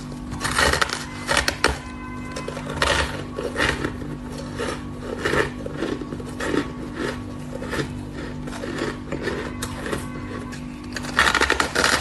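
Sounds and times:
crunching shaved ice: 0.0 - 12.0.

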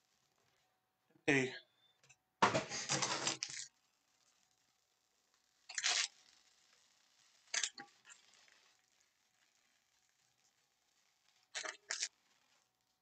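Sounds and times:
plastic wrap tearing and crinkling: 2.7 - 4.6, 5.6 - 12.9.

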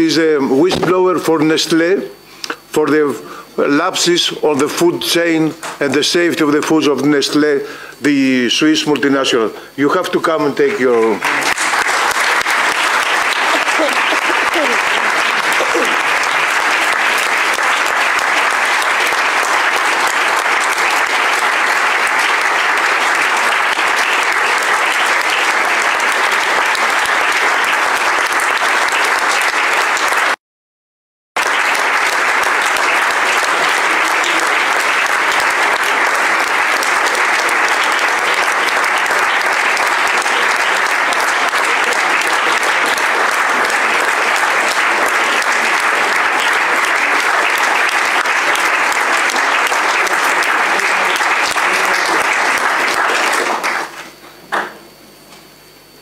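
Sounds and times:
audience applauding: 10.7 - 30.4, 31.4 - 54.7.

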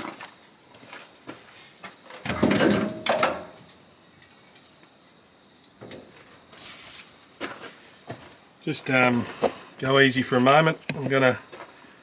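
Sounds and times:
metal parts scraping and knocking: 2.2 - 3.6.

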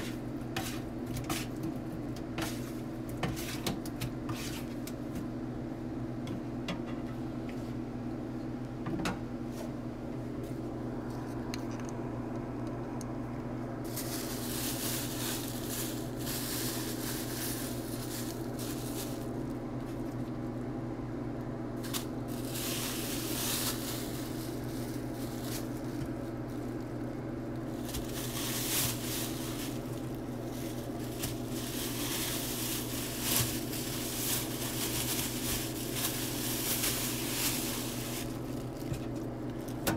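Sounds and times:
steady low hum: 0.0 - 39.9
plastic bag crinkling: 13.8 - 20.7, 21.7 - 39.9.

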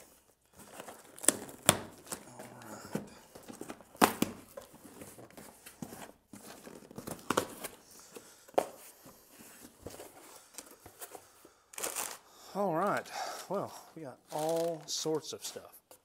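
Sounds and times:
packing paper rustling: 0.0 - 8.2, 9.3 - 12.2, 13.2 - 15.6
packing tape ripping: 0.6 - 3.0, 11.8 - 12.2, 14.3 - 14.9.

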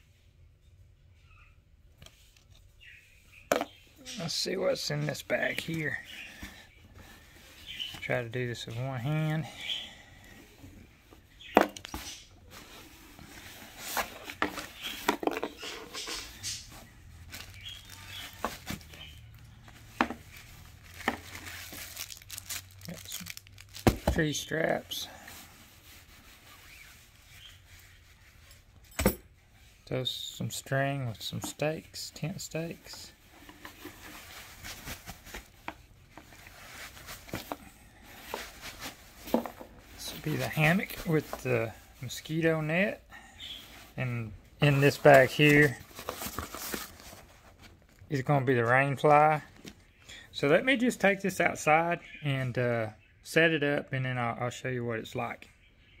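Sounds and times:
fabric sacks rustling: 16.4 - 25.0, 33.8 - 35.6, 36.3 - 41.4.

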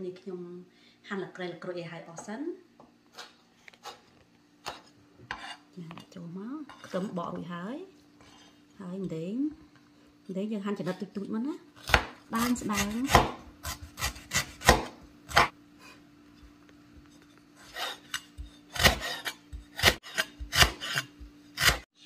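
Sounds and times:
cleaver chopping on wooden board: 11.8 - 15.5, 18.3 - 21.8.

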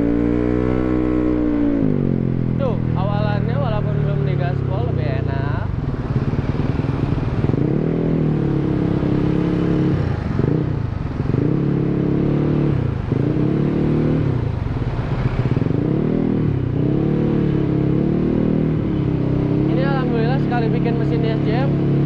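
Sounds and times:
scooter engine revving: 5.7 - 22.0.

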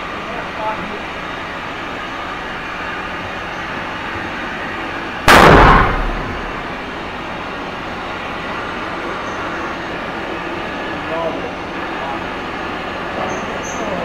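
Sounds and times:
steady background noise: 0.0 - 14.0
rifle shot: 5.3 - 6.6.

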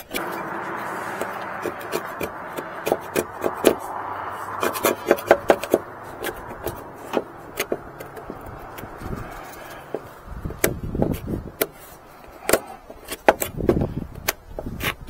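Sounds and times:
putty knife scraping and clicking: 10.6 - 15.0.

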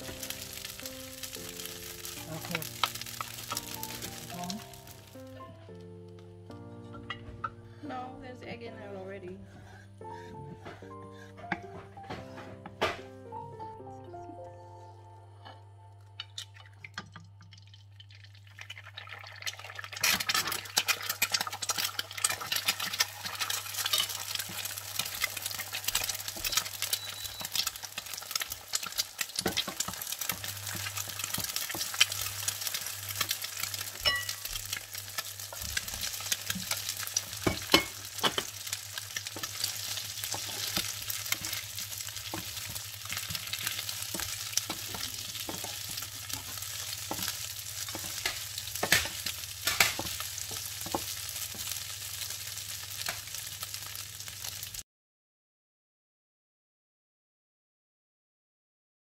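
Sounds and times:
egg sizzling in hot oil: 0.0 - 5.4, 16.2 - 54.8
wooden spatula scraping a pan: 39.2 - 51.7.

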